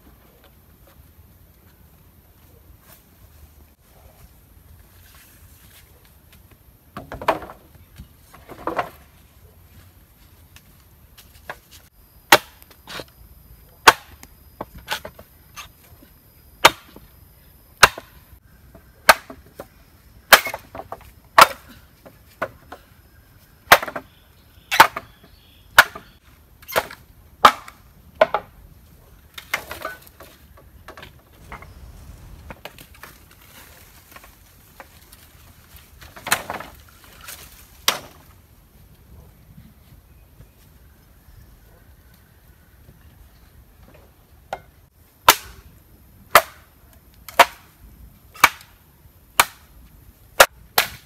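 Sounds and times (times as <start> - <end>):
machete chopping bamboo: 12.3 - 13.1, 13.8 - 14.2, 16.6 - 17.0, 17.8 - 18.2, 19.0 - 19.6, 20.3 - 21.8, 23.7 - 24.0, 24.7 - 28.5, 37.8 - 38.2, 45.2 - 45.6, 46.3 - 46.7, 47.3 - 47.8, 48.4 - 48.8, 49.4 - 49.7, 50.4 - 51.0.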